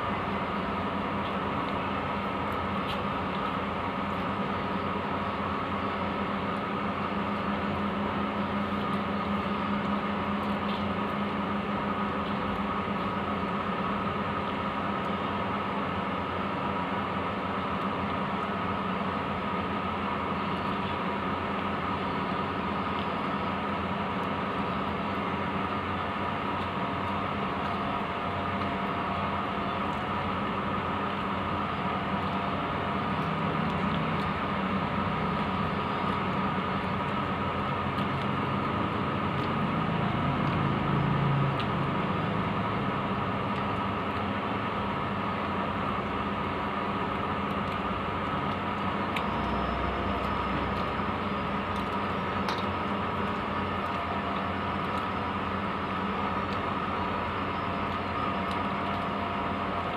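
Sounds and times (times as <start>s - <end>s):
steady mechanical hum: 0.0s - 59.9s
high whine: 47.9s - 59.9s.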